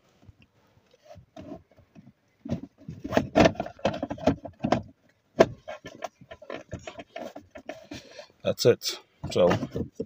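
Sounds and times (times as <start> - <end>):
hard plastic clicks and knocks: 1.4 - 8.0, 9.2 - 10.0.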